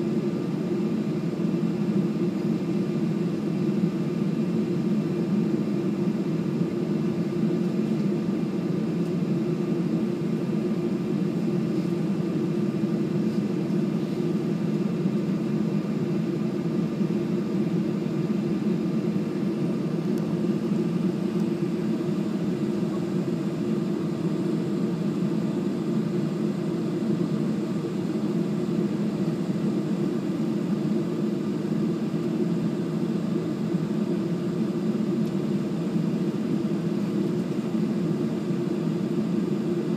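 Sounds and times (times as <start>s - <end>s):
airliner cabin drone: 0.0s - 39.9s
faint steady whines: 0.0s - 39.9s.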